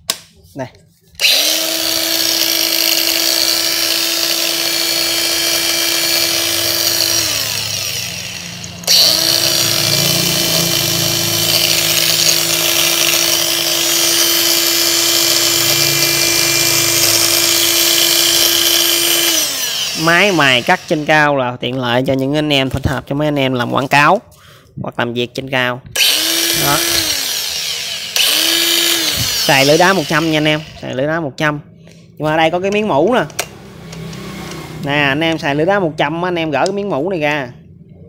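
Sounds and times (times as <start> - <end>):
angle grinder running free: 1.1 - 21.3, 26.0 - 31.2.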